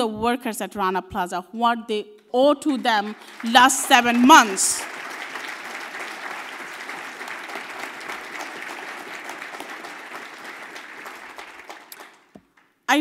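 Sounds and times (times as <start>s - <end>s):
audience applauding: 2.7s - 12.8s.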